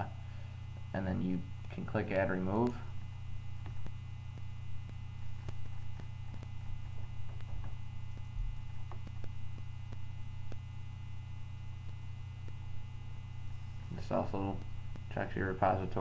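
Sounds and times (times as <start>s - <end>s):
electrical mains hum: 0.0s - 16.0s
high whine: 0.0s - 16.0s
faint clicks: 2.6s - 10.6s.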